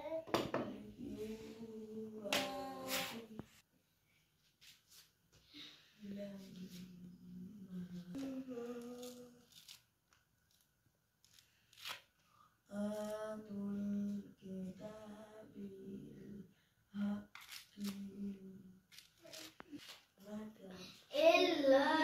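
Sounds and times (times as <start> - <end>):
person humming: 0.8 - 3.5, 6.0 - 9.7, 12.7 - 22.0
orange peel crackling: 8.6 - 12.2, 17.3 - 18.1, 18.9 - 20.1.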